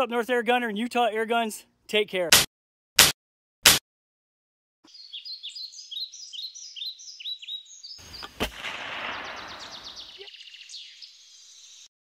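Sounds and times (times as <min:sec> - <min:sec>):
sharp shot-like crack: 0:02.3 - 0:03.8, 0:08.2 - 0:10.1
bird chirping: 0:04.8 - 0:11.9.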